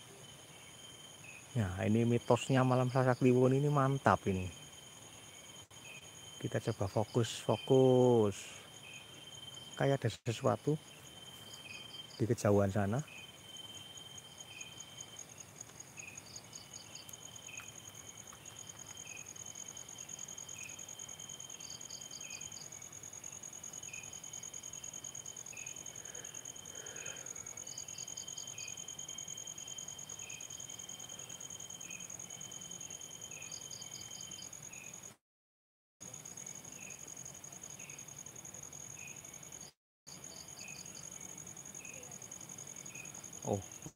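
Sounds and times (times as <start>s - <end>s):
insect trill: 0.0s - 35.2s, 36.0s - 43.9s
insects high ringing: 0.0s - 35.2s, 36.0s - 43.9s
rapid insect pulses: 0.0s - 35.2s, 36.0s - 43.9s
short insect chirps: 0.0s - 35.2s.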